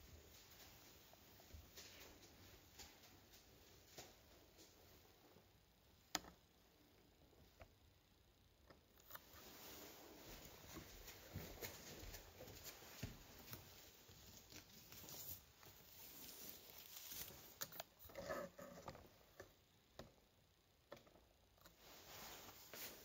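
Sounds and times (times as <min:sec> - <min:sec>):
fabric and cord rustling: 0:09.1 - 0:19.3, 0:21.7 - 0:23.0.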